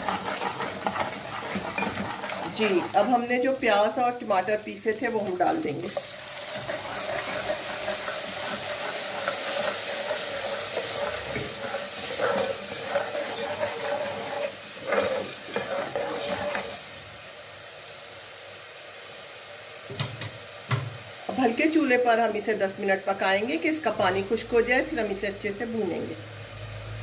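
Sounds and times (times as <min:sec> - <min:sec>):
metal ladle scraping pot: 0:00.0 - 0:03.3, 0:05.9 - 0:16.8
paste sizzling in hot oil: 0:00.0 - 0:27.0.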